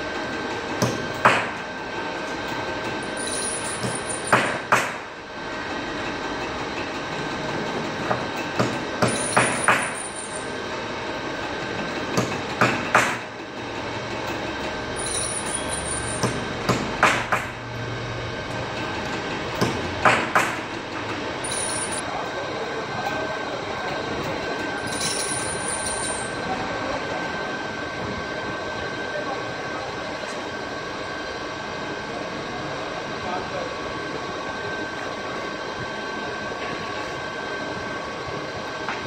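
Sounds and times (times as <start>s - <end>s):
machinery noise: 0.0s - 39.0s
sharp metallic clanks: 3.0s - 5.0s, 8.6s - 10.6s, 15.0s - 17.6s, 19.6s - 22.0s, 24.8s - 26.4s.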